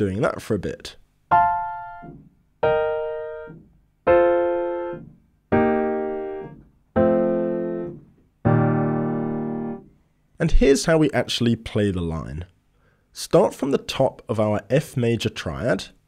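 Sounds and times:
piano chords ringing out: 1.3s - 9.9s.

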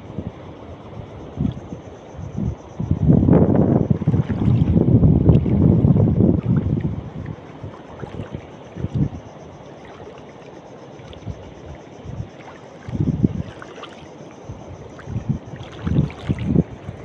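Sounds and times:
wind on microphone: 0.0s - 10.0s, 11.1s - 17.0s.

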